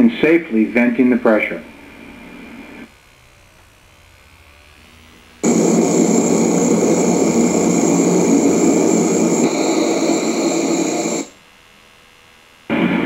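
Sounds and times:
steam hissing from relief valve: 5.4 - 11.4.

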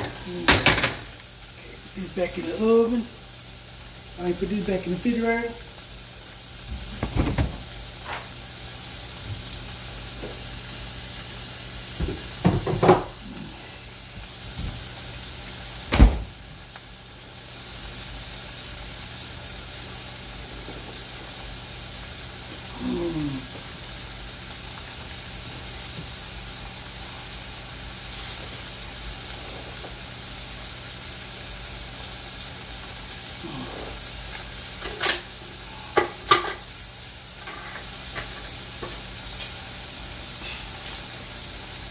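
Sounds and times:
steady hiss: 0.0 - 41.9
kitchen items knocking and clattering: 0.4 - 1.2, 6.9 - 7.6, 12.0 - 13.2.

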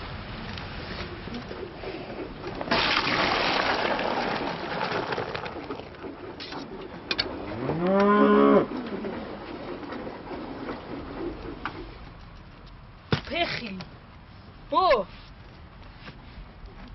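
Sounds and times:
cow mooing: 7.5 - 8.7.

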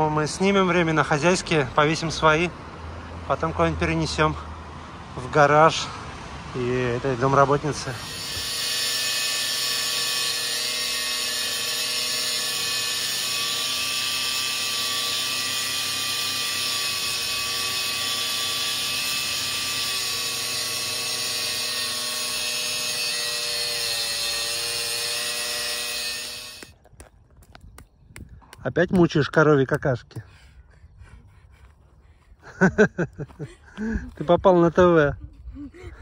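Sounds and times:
angle grinder whining: 8.0 - 26.8.

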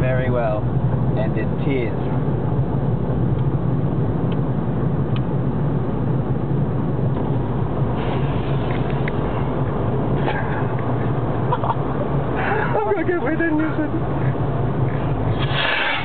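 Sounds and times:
car cabin drone: 0.0 - 16.0
firework fuse fizzing: 15.4 - 16.0.

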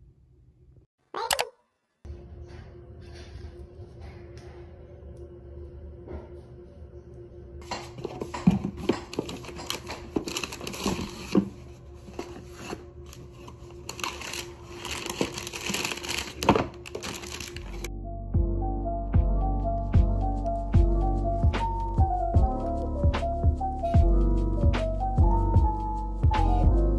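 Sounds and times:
music: 2.0 - 26.9
paper and cardboard rustling: 7.8 - 17.9.

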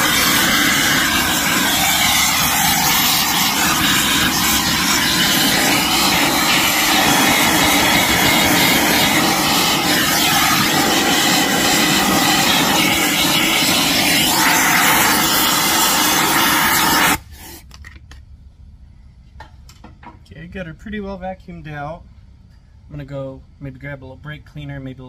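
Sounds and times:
air vacuum rushing hiss: 0.0 - 17.7.

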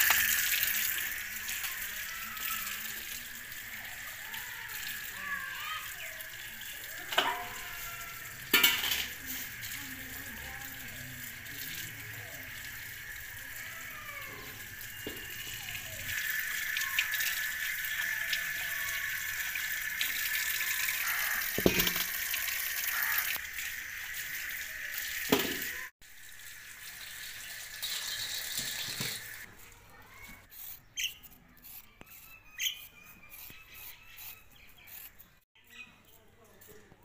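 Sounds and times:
tap water running into bowl: 0.0 - 29.5.

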